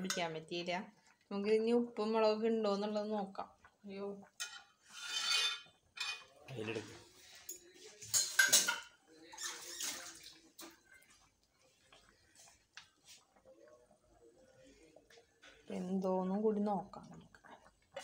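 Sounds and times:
spoon scraping a metal pot: 4.4 - 6.3, 7.4 - 10.0.

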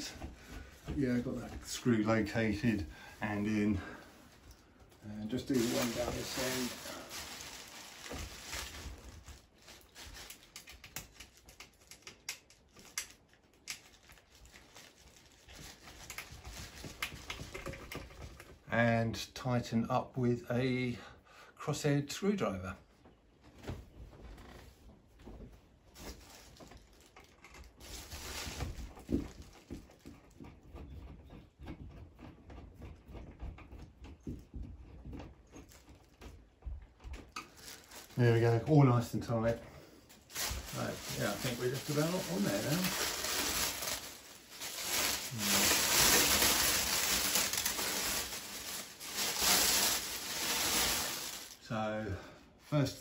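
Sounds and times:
plastic sheet rustling: 0.0 - 18.4, 25.9 - 29.9, 37.4 - 51.8.

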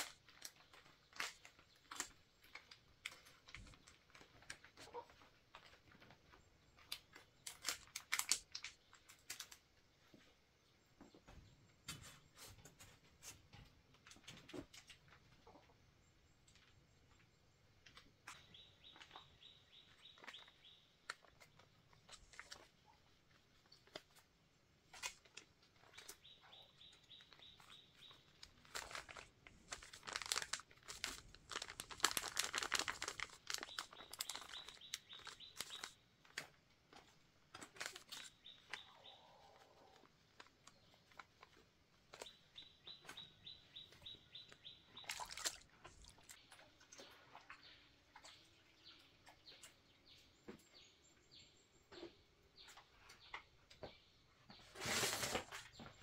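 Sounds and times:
plastic packet crinkling: 0.0 - 4.7, 7.4 - 9.6, 27.2 - 36.5, 37.5 - 38.9
powder shaken into bucket: 54.8 - 55.7.

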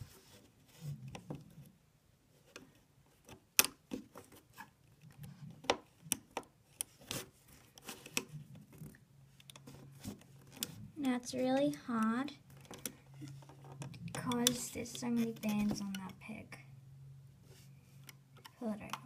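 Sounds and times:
plastic hook clicking on loom pegs: 13.7 - 14.6, 15.2 - 16.2.

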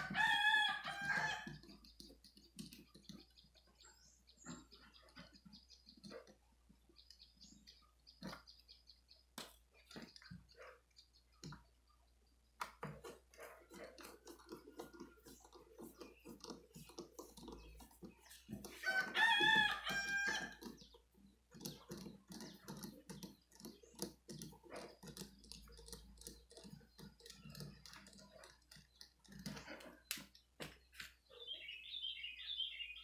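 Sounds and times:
rooster crowing: 0.0 - 1.4, 18.8 - 20.5.

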